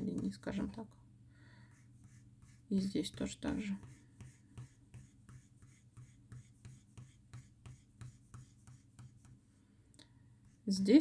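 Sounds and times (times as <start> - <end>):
pencil scratching on paper: 1.7 - 9.4, 10.4 - 11.0.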